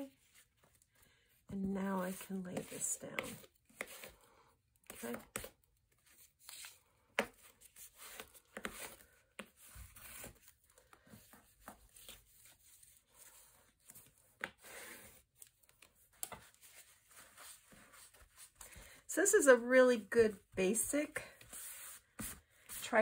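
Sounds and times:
bone folder scraping paper: 21.3 - 23.0.

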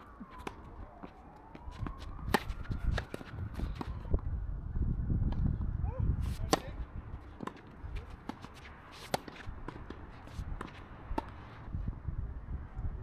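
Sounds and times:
faint footsteps on court: 0.0 - 4.2
rackets hitting tennis ball: 1.7 - 4.1, 6.2 - 11.5.

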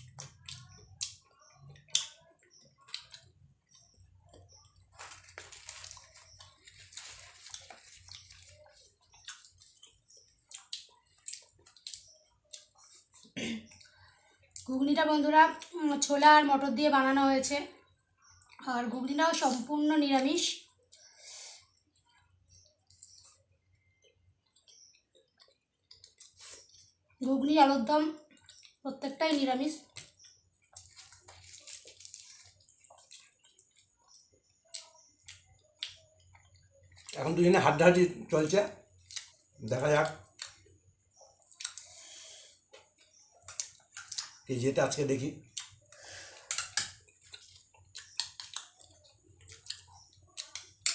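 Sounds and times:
bread torn and chewed: 0.0 - 13.4, 30.0 - 37.1, 41.4 - 41.9, 45.6 - 50.9.

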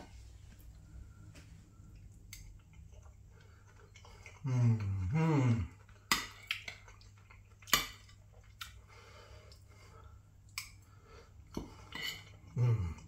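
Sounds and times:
quiet chewing: 0.5 - 13.0
person humming: 4.4 - 5.8, 12.5 - 13.0.

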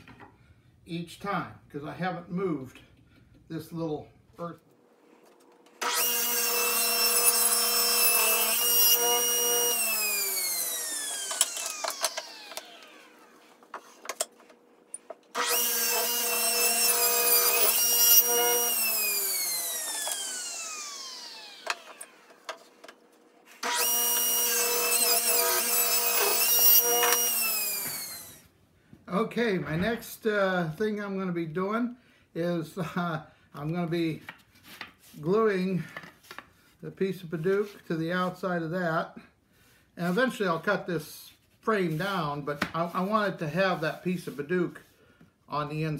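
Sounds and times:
table saw cutting wood: 5.6 - 14.0, 15.3 - 28.4.

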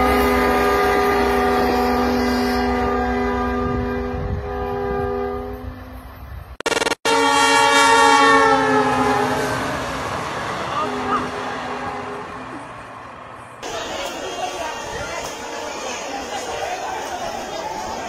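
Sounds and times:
locomotive horn blast: 0.0 - 6.2, 7.0 - 12.6
passing train rumble: 0.0 - 18.0.

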